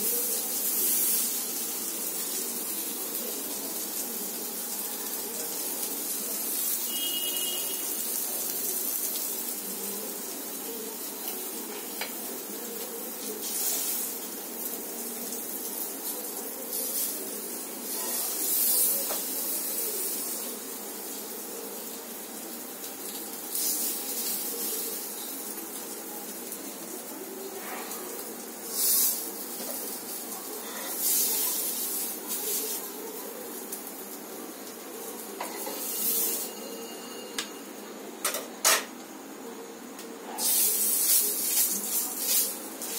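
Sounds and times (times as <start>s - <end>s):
food sizzling on a hot griddle: 0.0s - 42.9s.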